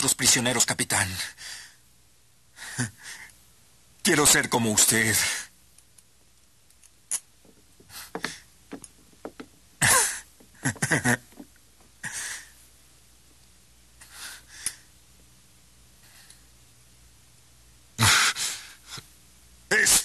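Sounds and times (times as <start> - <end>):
small clicks and knocks: 6.7 - 9.7.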